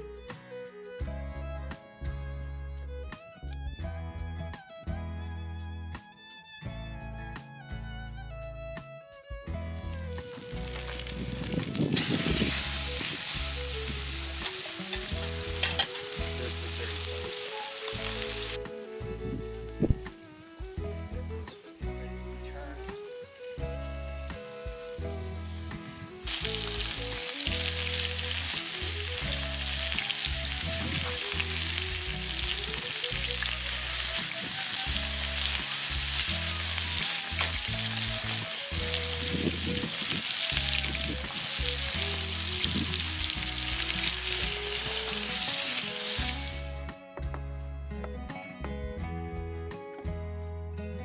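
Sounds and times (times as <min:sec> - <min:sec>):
background music: 0:00.0 - 0:51.0
steaks sizzling in a skillet: 0:09.8 - 0:46.9.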